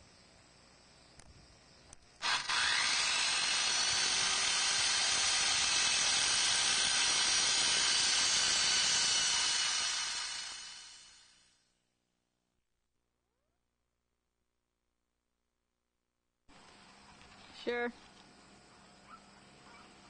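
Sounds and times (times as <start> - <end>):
power tool motor whining: 2.2 - 11.4.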